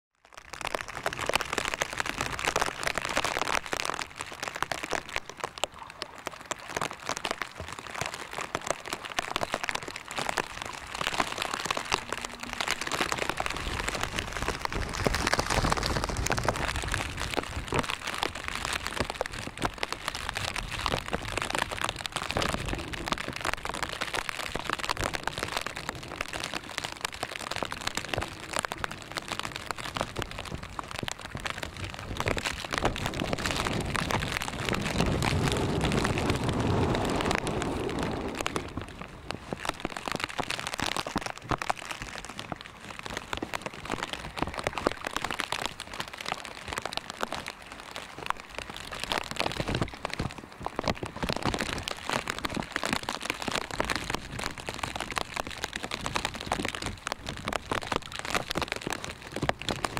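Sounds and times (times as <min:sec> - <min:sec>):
rain pattering: 0:00.1 - 0:59.9
low rumbles: 0:10.0 - 0:18.0, 0:27.9 - 0:40.4.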